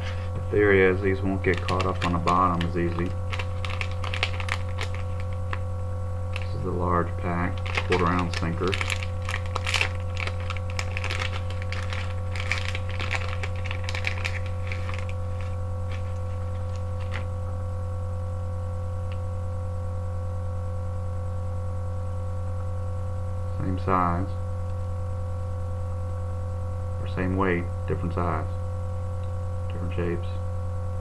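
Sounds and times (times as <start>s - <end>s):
steady hum: 0.0s - 31.0s
paper pack crinkling: 1.0s - 5.6s, 6.3s - 17.3s.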